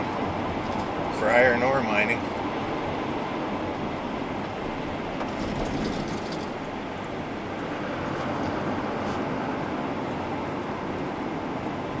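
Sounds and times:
vehicle road and engine noise: 0:00.0 - 0:12.0.

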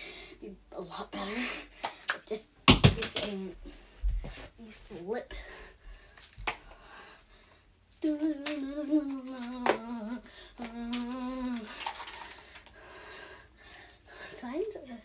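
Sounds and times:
balls slapping into hands: 0:01.8 - 0:03.5, 0:06.2 - 0:06.7, 0:08.4 - 0:10.0
girl humming: 0:08.0 - 0:12.0.

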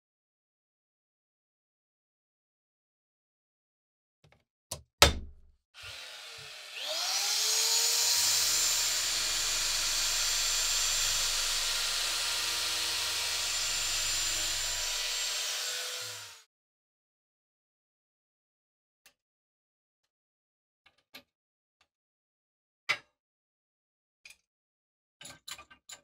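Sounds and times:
sharp knocks: 0:05.0 - 0:05.5
polishing wheel motor whining: 0:05.8 - 0:16.4.

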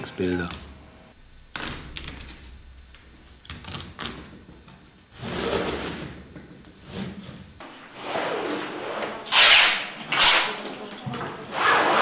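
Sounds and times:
canvas rasping: 0:06.8 - 0:10.7, 0:11.4 - 0:12.0.

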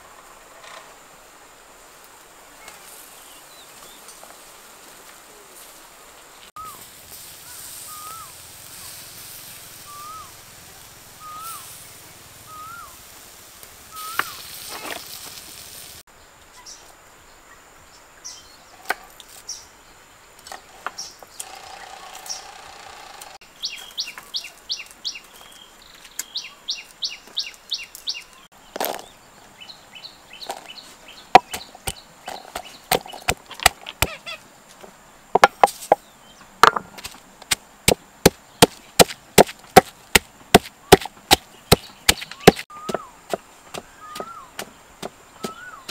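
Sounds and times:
soft hiss: 0:00.0 - 0:21.4
bird twittering: 0:07.4 - 0:08.3, 0:09.9 - 0:10.3, 0:11.2 - 0:11.7, 0:12.5 - 0:13.0, 0:13.9 - 0:14.4, 0:40.8 - 0:43.2, 0:43.8 - 0:44.6, 0:45.3 - 0:45.9
short rising bird chirp: 0:07.5 - 0:08.4, 0:09.8 - 0:10.4, 0:11.2 - 0:11.7, 0:12.5 - 0:13.0, 0:13.9 - 0:14.4
sharp knocks on wood: 0:35.4 - 0:36.0, 0:36.6 - 0:37.2.

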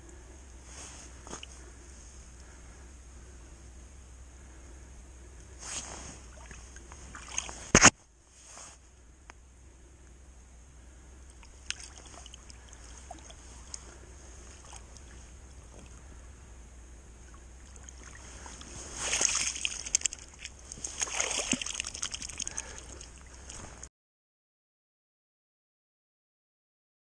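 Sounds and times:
water sloshing and splashing: 0:05.6 - 0:08.0, 0:11.3 - 0:16.0, 0:17.3 - 0:23.9.

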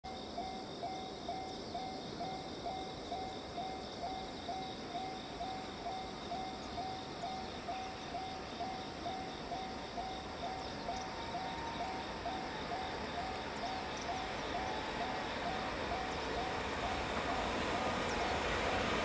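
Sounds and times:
insects chirring: 0:00.1 - 0:19.0
level crossing warning bell: 0:10.0 - 0:19.0.

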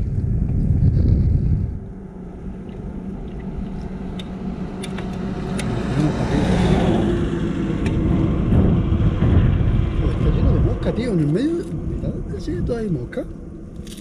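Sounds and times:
low wind rumble: 0:00.0 - 0:14.0
road vehicle passing: 0:01.6 - 0:13.8.

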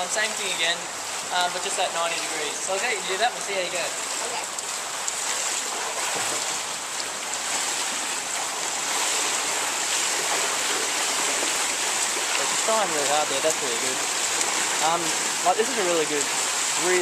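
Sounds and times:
swimmer splashing water: 0:00.0 - 0:17.0.

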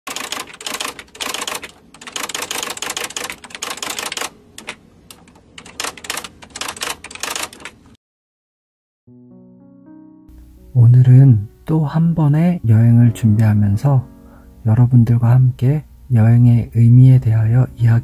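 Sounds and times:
keyboard keystrokes clacking: 0:00.1 - 0:07.8.

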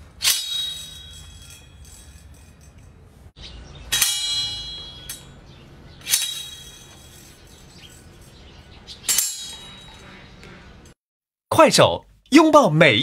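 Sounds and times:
steel saw blades clanging: 0:00.0 - 0:03.2, 0:03.9 - 0:10.3.

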